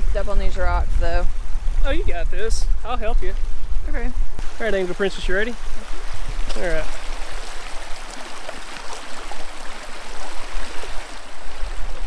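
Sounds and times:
river water rushing over rocks: 4.4 - 12.0.

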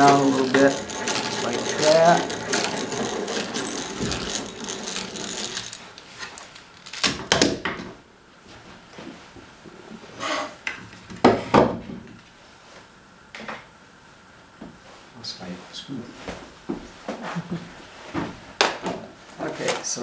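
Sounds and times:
hand drill whirring and clicking: 0.0 - 7.1.

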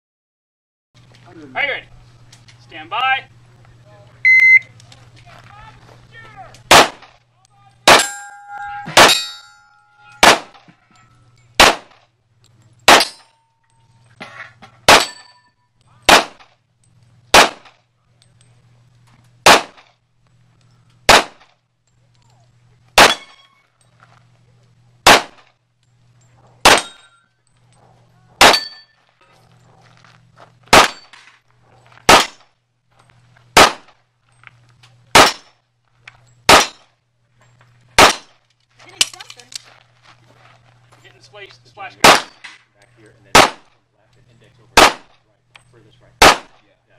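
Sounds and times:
handgun shots: 6.7 - 7.2, 7.9 - 8.1, 10.2 - 10.7, 11.6 - 12.0, 12.9 - 13.2, 14.8 - 15.3, 16.1 - 16.5, 17.3 - 17.8, 19.4 - 19.9, 21.1 - 21.5, 23.0 - 23.4, 25.0 - 25.5, 26.6 - 27.1, 28.4 - 28.8, 30.7 - 31.2, 32.1 - 32.5, 33.6 - 34.0, 35.1 - 35.5, 36.5 - 36.9, 38.0 - 38.3, 42.0 - 42.6, 43.3 - 43.7, 44.8 - 45.2, 46.2 - 46.6
steel targets ringing: 7.8 - 11.8, 12.8 - 14.2, 14.8 - 16.3, 23.0 - 23.8, 26.6 - 27.4, 28.4 - 29.2.

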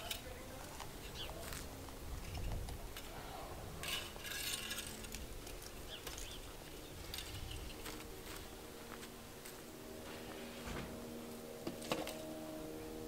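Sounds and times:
wind rumble on microphone: 0.8 - 8.6.

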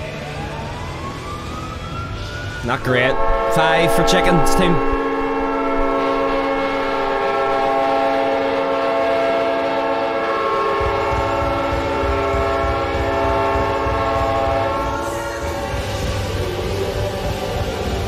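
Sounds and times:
goal horn chord: 2.8 - 15.6.

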